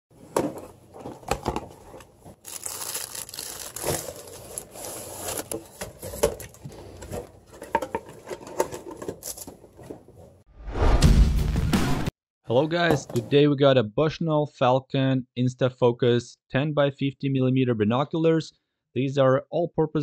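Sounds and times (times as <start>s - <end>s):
plastic and cardboard crinkling: 0.4s - 10.2s.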